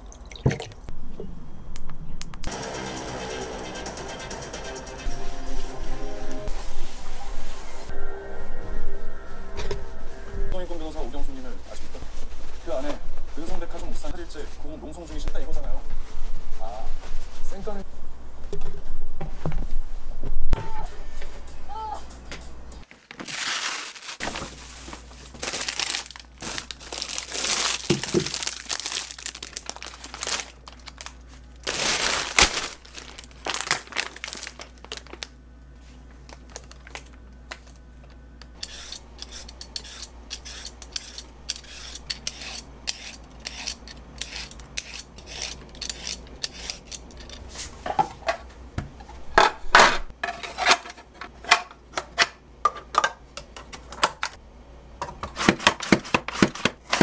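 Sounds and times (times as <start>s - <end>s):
plastic packaging crinkling and tearing: 22.9s - 35.4s, 36.2s - 37.6s
peeler scraping a carrot: 38.6s - 47.4s.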